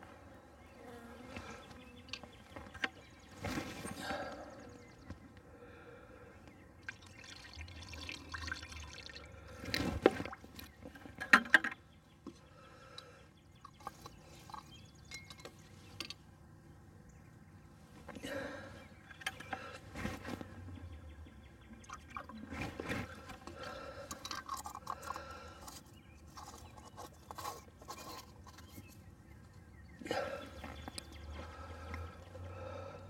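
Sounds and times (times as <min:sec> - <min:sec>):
liquid sloshing: 0:21.8 - 0:25.3.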